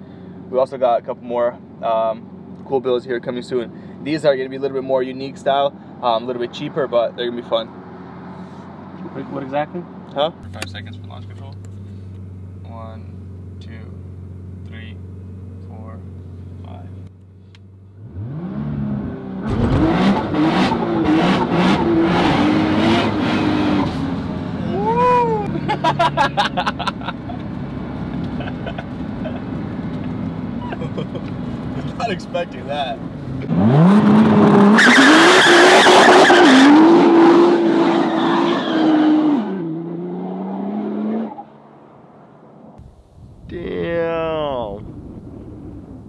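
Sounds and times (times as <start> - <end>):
car engine revving: 17.9 - 42.4
tires squealing on asphalt: 33.6 - 41.4.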